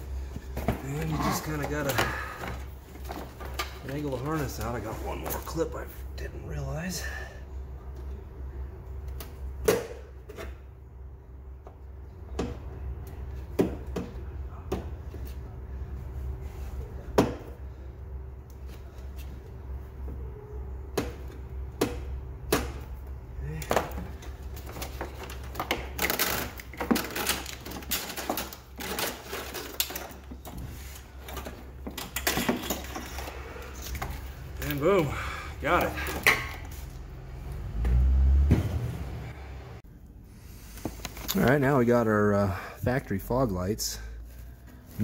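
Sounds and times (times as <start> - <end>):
wiring harness rattling and scraping: 0.2 - 5.8, 24.1 - 36.9.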